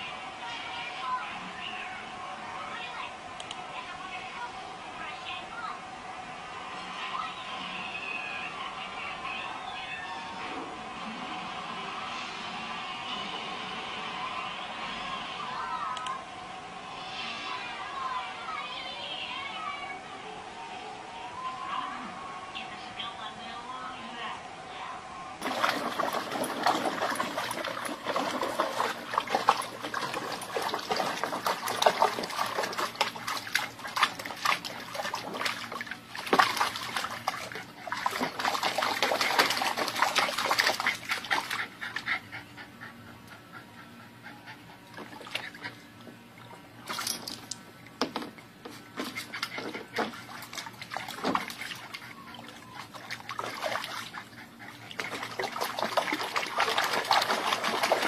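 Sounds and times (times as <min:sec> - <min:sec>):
water splashing and trickling: 0:25.4 - 0:41.6, 0:49.2 - 0:58.0.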